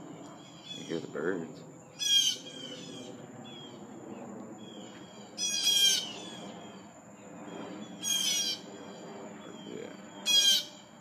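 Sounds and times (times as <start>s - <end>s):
bird calling: 0.4s - 1.3s, 1.9s - 3.8s, 4.7s - 6.9s, 8.0s - 10.9s.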